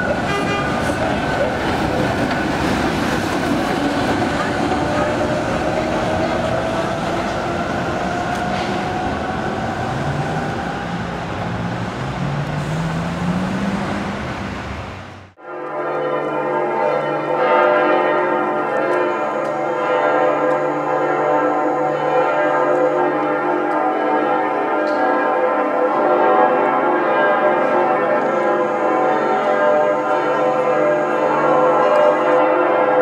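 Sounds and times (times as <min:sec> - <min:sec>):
church bells pealing: 0:00.0 - 0:33.0.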